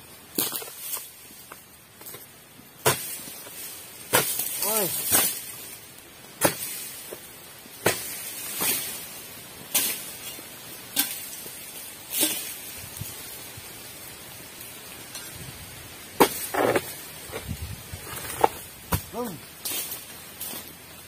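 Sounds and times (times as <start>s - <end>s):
chisel chopping palm fronds: 0.3s - 5.7s, 6.4s - 12.7s, 16.2s - 17.5s, 18.2s - 20.7s.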